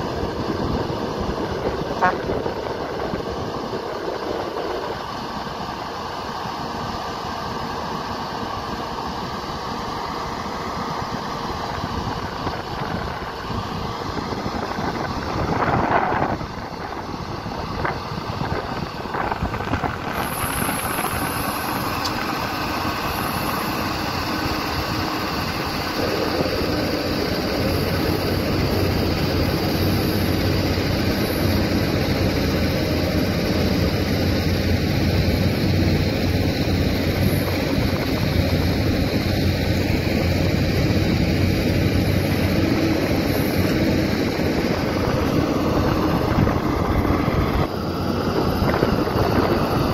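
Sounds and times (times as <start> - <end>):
wind on microphone: 0.0 - 5.1, 11.0 - 49.9
dump truck engine: 0.0 - 49.9
excavator diesel engine: 0.0 - 49.9.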